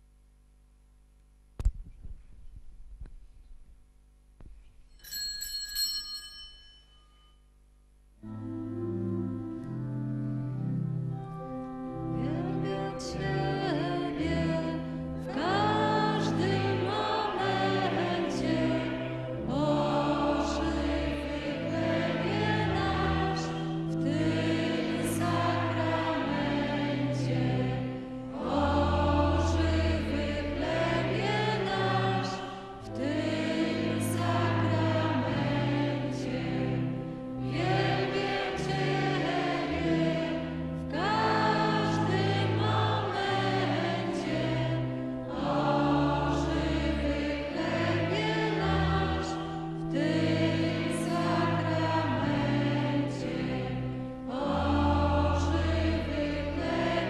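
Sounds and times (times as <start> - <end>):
organ chords: 8.1 - 57.0
congregation singing a hymn: 8.2 - 57.0.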